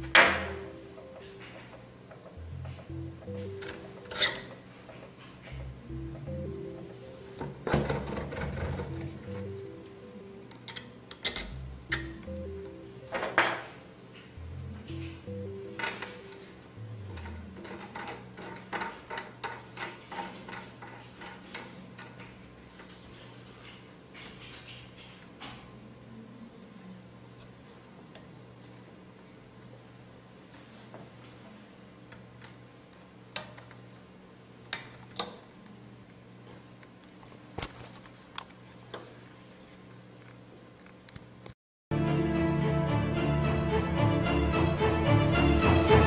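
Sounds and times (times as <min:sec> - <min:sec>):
steady low hum: 0:00.0 - 0:41.5.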